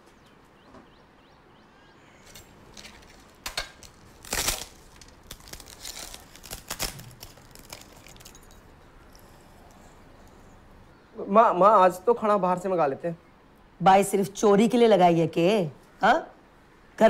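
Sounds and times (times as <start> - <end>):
short clatters and crinkling: 2.2 - 8.8.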